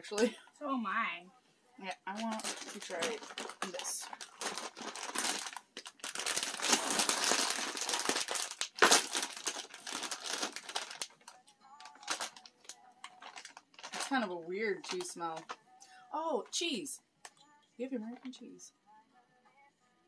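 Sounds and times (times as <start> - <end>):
plastic snack bag crinkling: 1.9 - 15.6.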